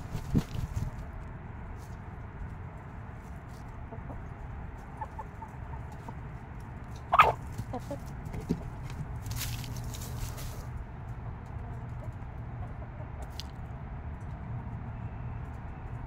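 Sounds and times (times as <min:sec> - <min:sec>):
chickens clucking: 0:03.4 - 0:13.7
loud sharp chicken call: 0:07.0 - 0:08.0.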